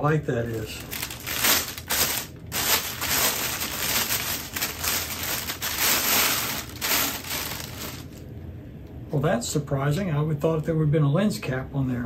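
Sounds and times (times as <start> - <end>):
plastic bag crinkling: 0.4 - 8.2.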